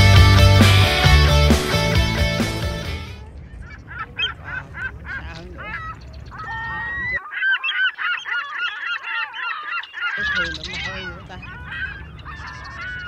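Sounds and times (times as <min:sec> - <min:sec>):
gulls squawking: 0:03.1 - 0:13.0.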